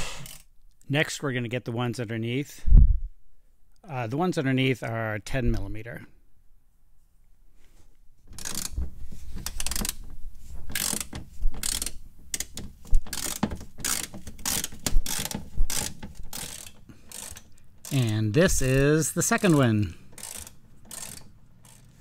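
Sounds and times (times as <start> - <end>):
socket ratchet clicking: 8.4 - 8.8, 9.4 - 10.0, 10.7 - 18.1, 20.1 - 22.0.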